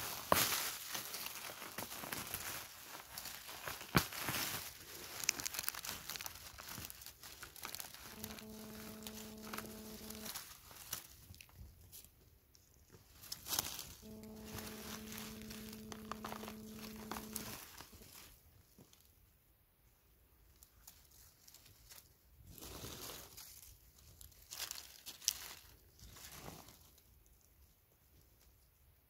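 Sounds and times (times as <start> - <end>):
dry needles and leaves rustling: 0.0 - 19.1, 20.4 - 28.8
twigs snapping: 3.1 - 8.0
low hum with overtones: 8.0 - 10.4, 13.8 - 17.8.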